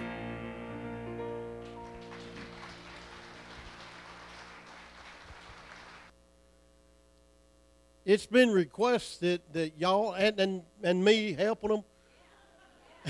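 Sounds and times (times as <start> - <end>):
gospel band final chord: 0.0 - 6.1
faint hum: 0.0 - 13.0
light applause: 1.6 - 6.1.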